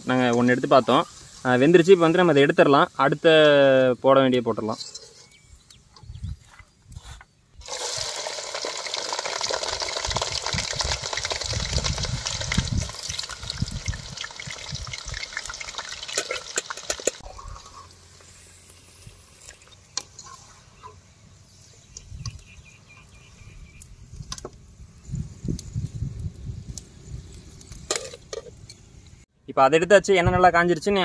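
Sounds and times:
fries sizzling in hot oil: 0.0s - 4.8s, 7.6s - 29.2s.

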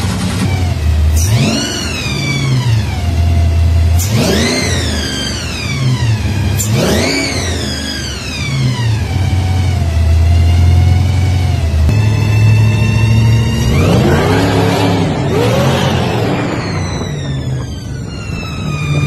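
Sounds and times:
supercharged engine revving: 0.0s - 19.0s
supercharger whine: 0.0s - 19.0s.

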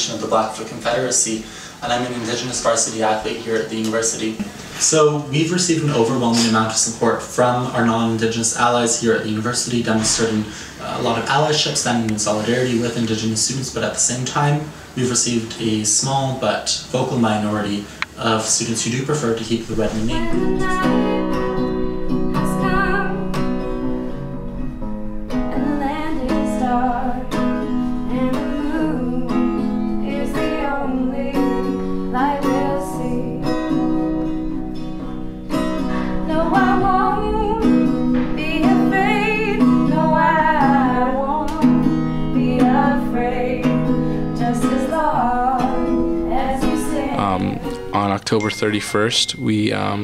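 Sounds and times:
acoustic guitar strumming: 19.4s - 50.0s
person singing: 35.8s - 37.8s, 44.4s - 50.0s.

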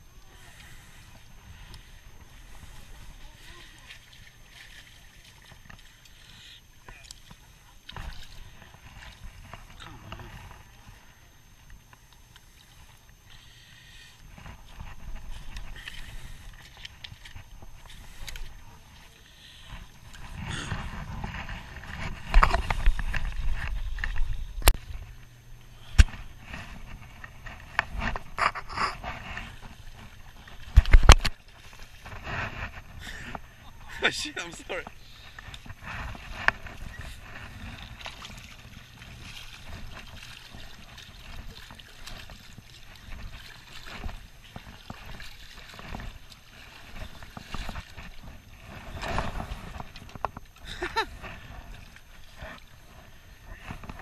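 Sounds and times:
river water sloshing around legs: 0.0s - 54.0s
microphone handling rumble: 19.7s - 34.0s.

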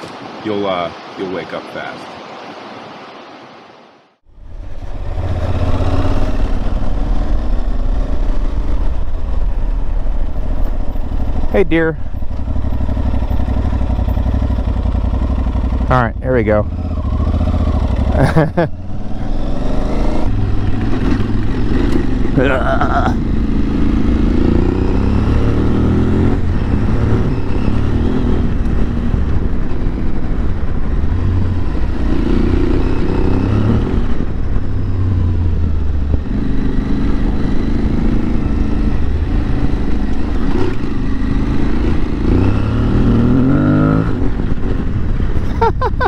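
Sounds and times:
motorcycle engine under way: 4.6s - 45.7s.

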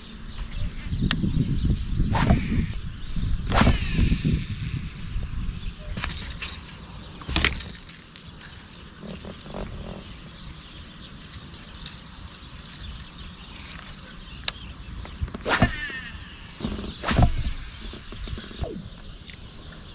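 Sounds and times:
wind rumble on microphone: 0.0s - 19.9s
fishing rod swishing through air: 2.1s - 2.8s, 3.5s - 4.8s, 15.4s - 18.0s.

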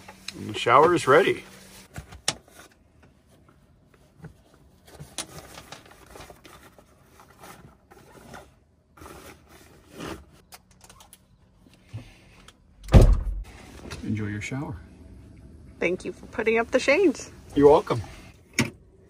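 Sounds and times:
fabric rustling and scraping: 0.0s - 10.4s.

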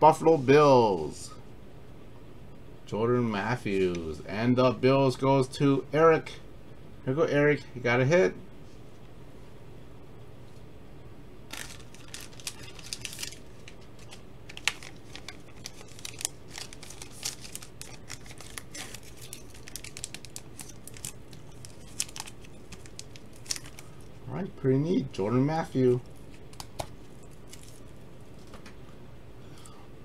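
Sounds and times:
low room hum: 0.0s - 30.0s
plastic crinkling: 11.5s - 24.2s, 25.9s - 28.6s.

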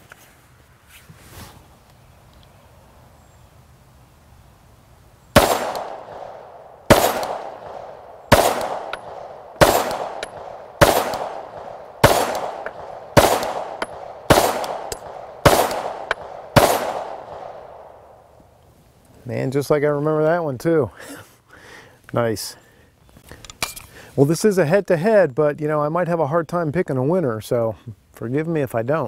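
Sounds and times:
pistol shots echoing: 5.4s - 18.2s.

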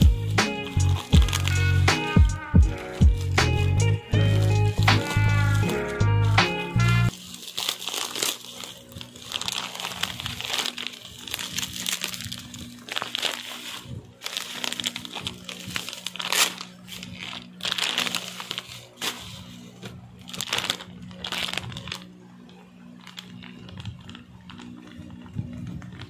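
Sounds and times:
background music: 0.0s - 7.1s
plastic packaging crinkling: 0.0s - 26.0s.

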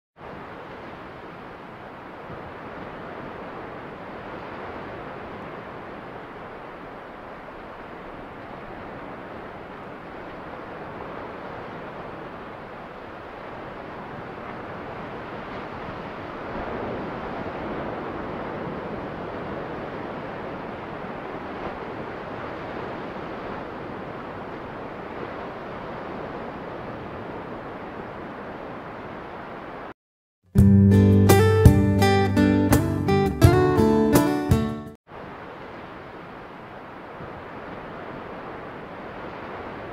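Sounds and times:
wind rushing over microphone: 0.2s - 29.9s
strummed acoustic guitar music: 30.6s - 35.0s.

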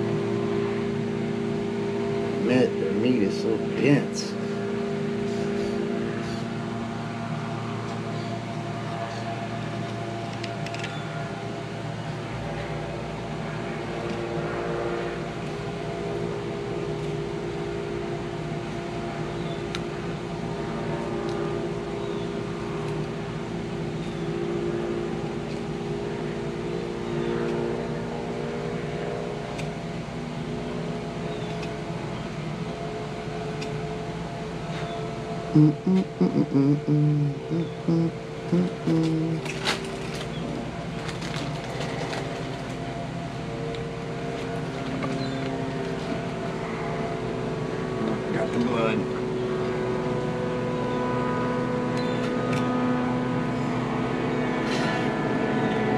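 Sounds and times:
steady machine hum: 0.0s - 55.9s.

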